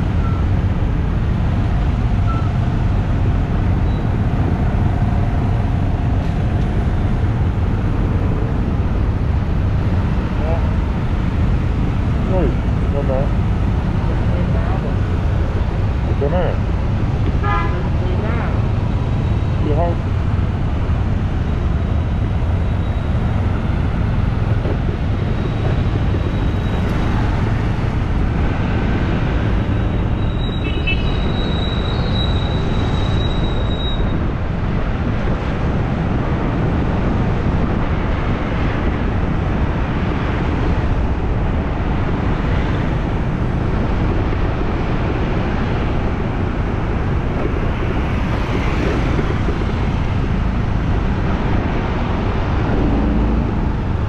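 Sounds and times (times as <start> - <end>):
street traffic rumble: 0.0 - 54.0.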